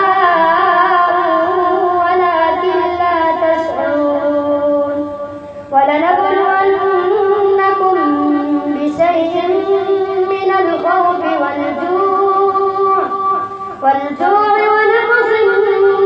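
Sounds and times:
boy chanting melodic recitation: 0.0s - 16.0s.

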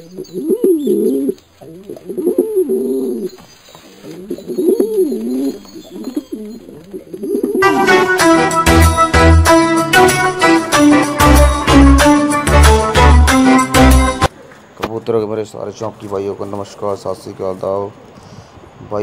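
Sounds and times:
pigeons cooing: 0.0s - 8.1s
music: 7.5s - 14.3s.

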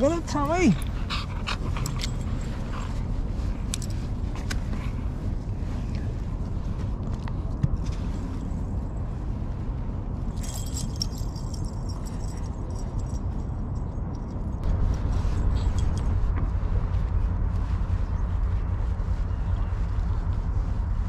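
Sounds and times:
light metallic jingling: 0.0s - 4.2s, 10.3s - 14.6s
steady low rumble: 0.0s - 21.0s.

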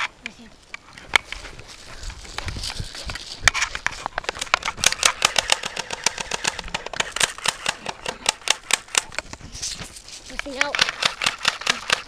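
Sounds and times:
rustling hiss: 0.0s - 12.0s
airsoft guns firing: 4.7s - 9.1s, 10.7s - 12.0s.

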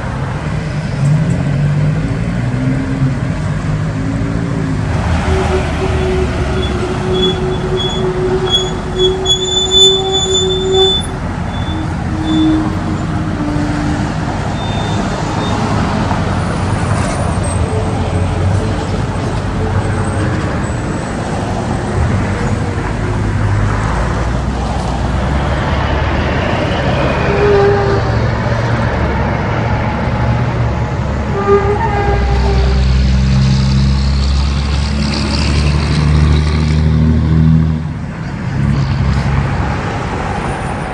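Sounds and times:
trucks passing: 0.0s - 40.9s.

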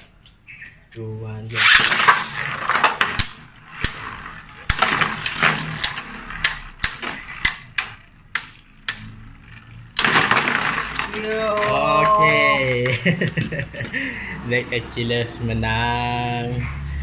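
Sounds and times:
spinning tops clacking: 1.5s - 13.0s
spinning tops whirring on plastic: 1.5s - 13.0s.

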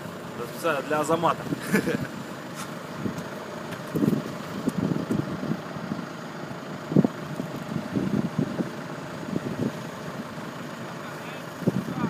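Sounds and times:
diesel engines rumbling: 0.0s - 12.0s.

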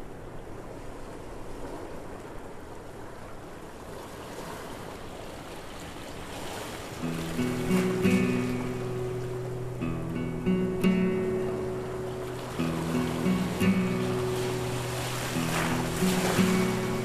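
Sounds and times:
waves washing over pebbles: 0.8s - 17.0s
plucked guitar music: 7.0s - 17.0s.

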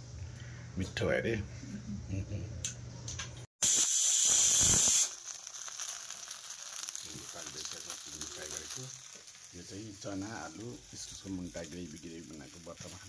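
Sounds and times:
okra sizzling in a pan: 3.6s - 13.0s.

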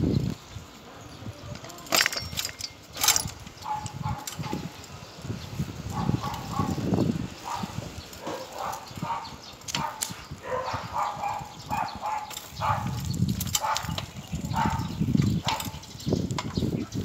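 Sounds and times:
wind rumbling on microphone: 0.0s - 17.0s
dog-like barks: 3.6s - 4.6s, 5.9s - 6.8s, 7.4s - 13.0s, 13.6s - 14.9s.

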